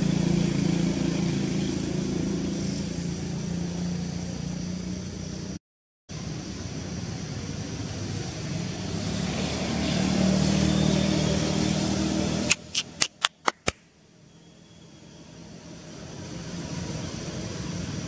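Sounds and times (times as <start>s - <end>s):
vehicle engine running: 0.0s - 5.6s
sharp clicks: 12.5s - 13.9s.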